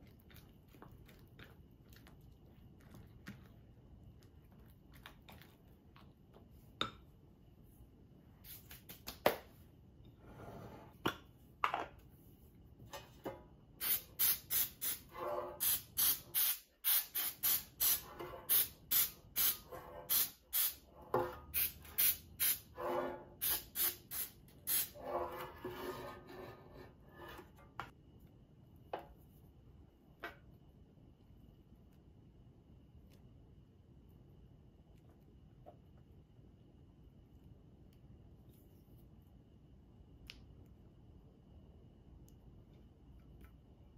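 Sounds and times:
aerosol spray hissing bursts: 13.8 - 15.0, 15.6 - 20.8.

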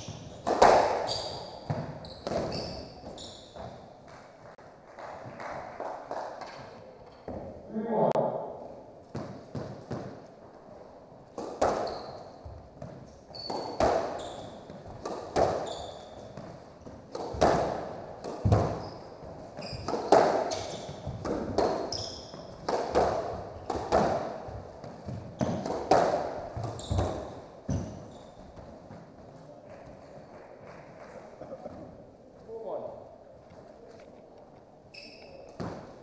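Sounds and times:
squash ball hit by racket: 0.0 - 3.2, 9.1 - 10.2, 11.4 - 12.2, 12.8 - 28.1, 35.5 - 36.0
sneakers squeaking on floor: 0.0 - 4.5, 6.4 - 7.7, 11.4 - 32.1, 34.8 - 36.0
ball slapping off walls: 17.1 - 18.9, 22.6 - 28.0.

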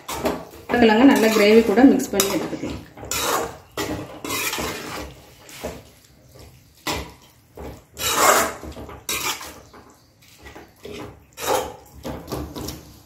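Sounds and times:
spoon scraping metal pot: 0.0 - 5.8, 7.7 - 12.0.

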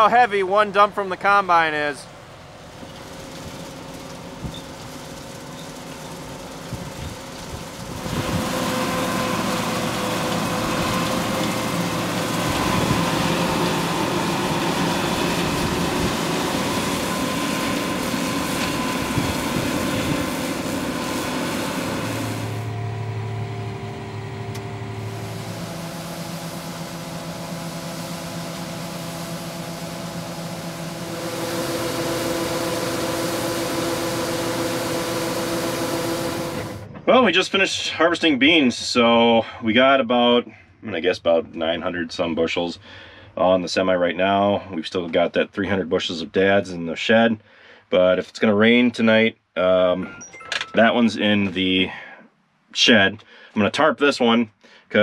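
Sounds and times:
combine harvester running: 0.0 - 39.2, 50.0 - 51.9.

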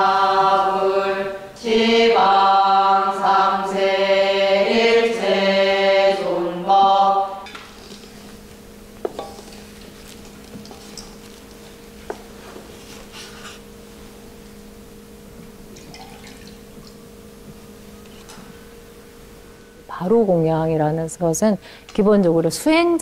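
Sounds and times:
low steady hum: 0.0 - 23.0
bowls knocking: 7.4 - 12.8, 15.4 - 18.6
liquid pouring and dripping: 15.7 - 17.1.

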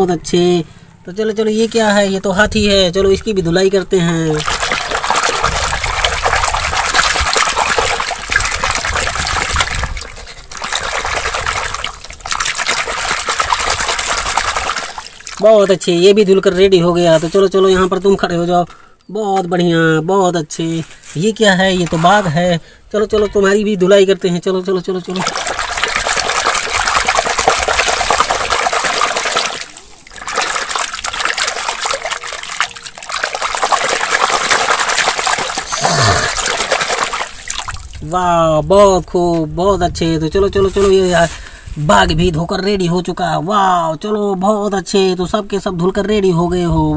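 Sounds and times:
water sloshing in a basin: 4.3 - 17.8, 20.9 - 22.6, 24.9 - 38.1.

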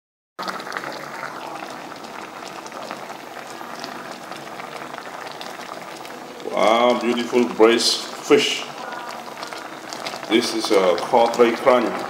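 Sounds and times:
sauce bubbling in pot: 0.4 - 12.0.

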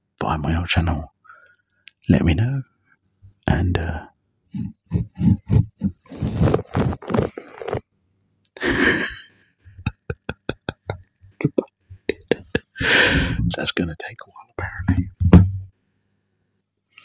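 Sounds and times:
breathy laugh: 8.6 - 13.5
person mumbling: 8.6 - 13.6.

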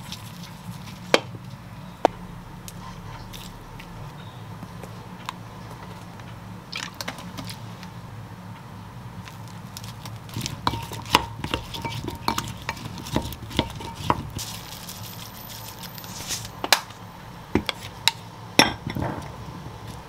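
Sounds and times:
spoon stirring cucumber slices: 10.1 - 15.6.

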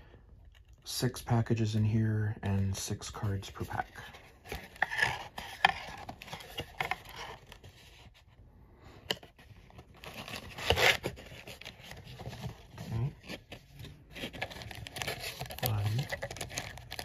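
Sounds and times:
foil packs crinkling: 14.1 - 17.0.

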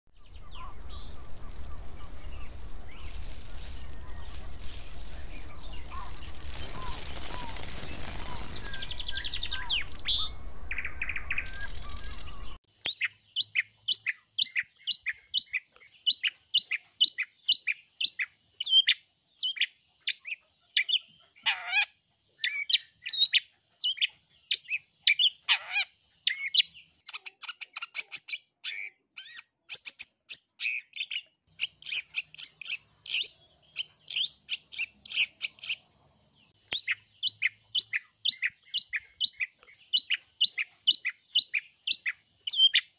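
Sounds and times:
bird chattering song: 0.1 - 42.9
hiss: 0.3 - 10.6.

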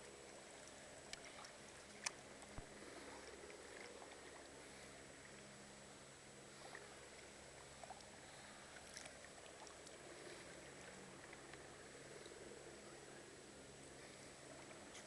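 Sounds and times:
faint ticks: 0.0 - 4.6, 7.8 - 12.4
faint steady hiss: 0.0 - 15.0
low hum: 0.0 - 15.0.

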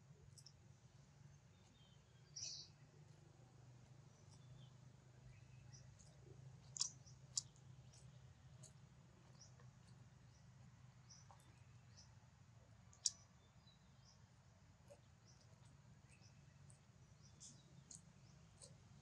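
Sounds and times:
faint woodland ambience: 0.0 - 19.0.

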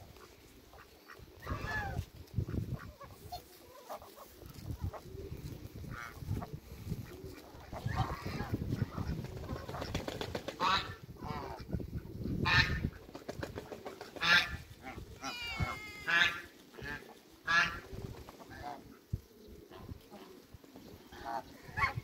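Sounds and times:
geese honking: 14.2 - 17.8.

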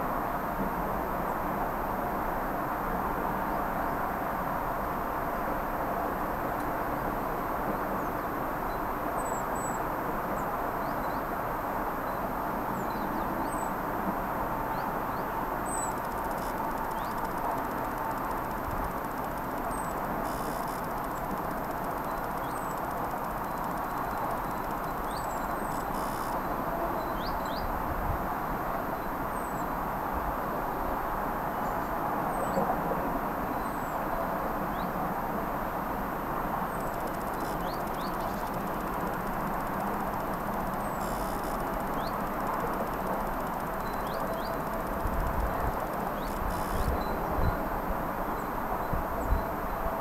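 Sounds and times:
low rushing background noise: 13.9 - 26.7
small birds chirping: 14.7 - 26.4, 36.7 - 47.1.

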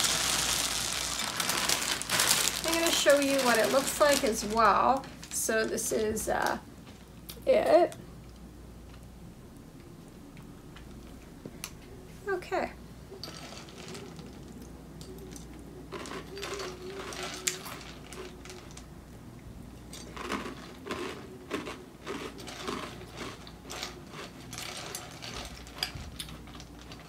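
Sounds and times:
spoon stirring cereal in bowl: 15.4 - 18.8, 19.8 - 27.0.

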